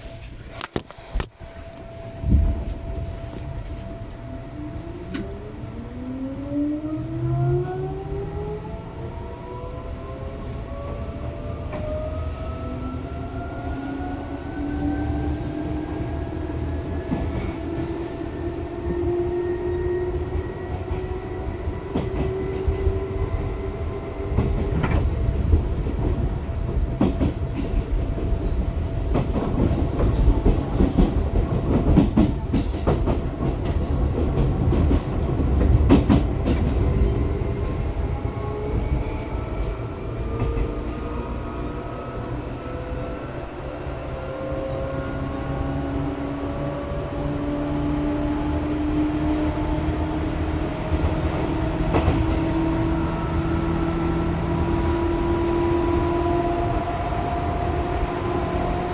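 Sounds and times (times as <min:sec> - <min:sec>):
rail joint clicks: 0:00.1 - 0:05.5, 0:13.6 - 0:19.0, 0:19.6 - 0:22.9, 0:24.3 - 0:41.5, 0:44.1 - 0:45.0, 0:50.9 - 0:52.5.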